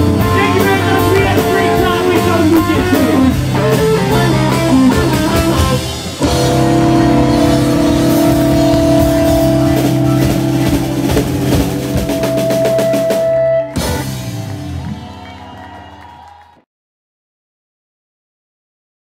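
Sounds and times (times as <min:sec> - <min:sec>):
electric guitar chord: 0:00.0 - 0:14.8
fast drum roll: 0:00.0 - 0:15.2.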